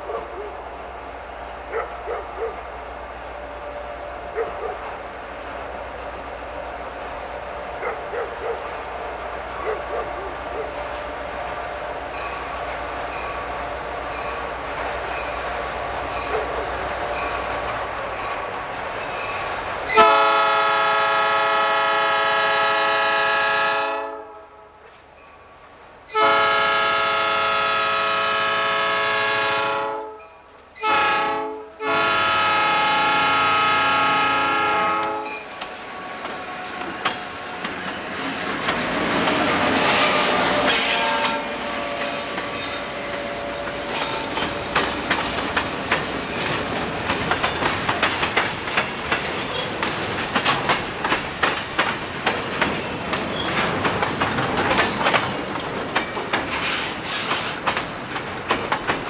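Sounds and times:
locomotive engine: 0.0 - 22.3, 32.2 - 59.0
locomotive air horn blasts: 19.9 - 24.8, 26.1 - 30.2, 30.8 - 35.4, 39.6 - 44.3
wheels clicking over rail joints: 34.9 - 59.0.

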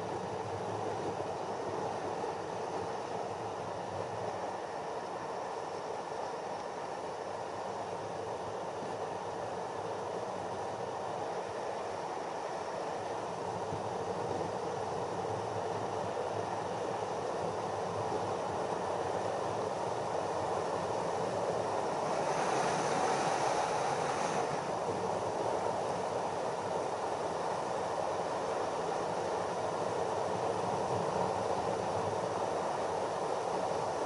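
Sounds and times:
bright hiss: 21.5 - 25.0
wind rush: 21.6 - 25.4.

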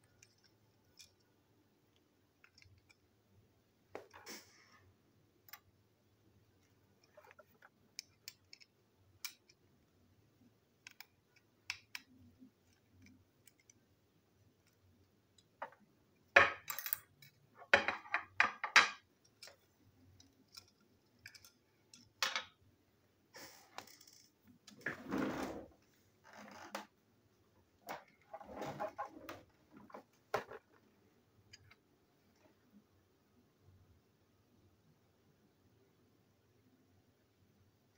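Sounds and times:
plastic parts clicking on tabletop: 10.8 - 13.8.

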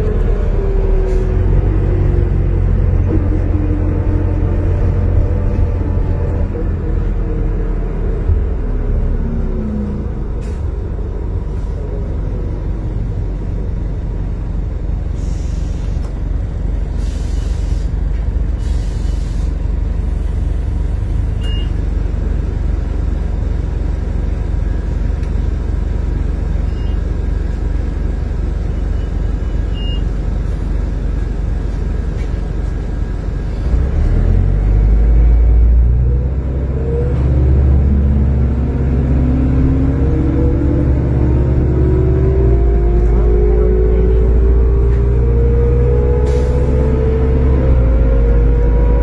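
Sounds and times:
bus diesel engine droning: 0.0 - 49.0
air hissing: 17.0 - 18.0, 18.6 - 20.5.

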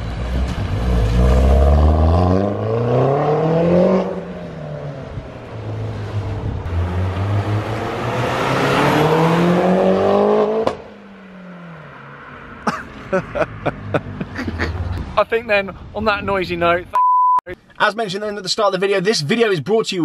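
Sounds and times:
car engine revving: 0.0 - 12.3.

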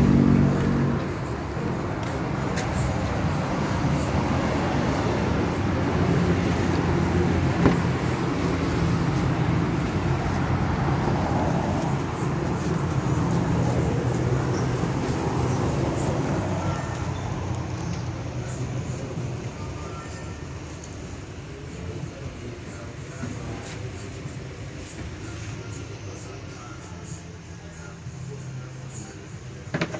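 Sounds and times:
vehicle engine humming: 0.0 - 29.9.

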